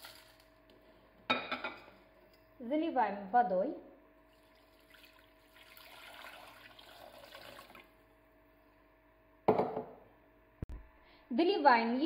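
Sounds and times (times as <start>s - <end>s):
water pouring into pot: 4.3s - 7.9s.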